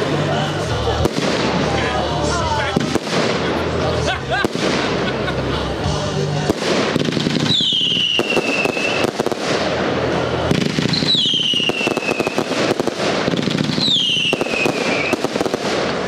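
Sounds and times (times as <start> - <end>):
fireworks crackling and popping: 0.0 - 16.0
firework whistling: 6.5 - 16.0.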